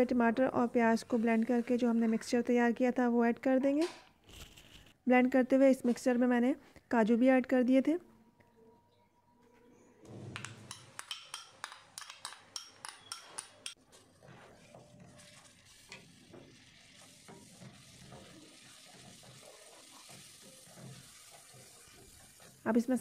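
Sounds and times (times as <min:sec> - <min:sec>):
spatula scraping wok: 0:13.0 - 0:22.7
paste sizzling in a wok: 0:13.9 - 0:23.0.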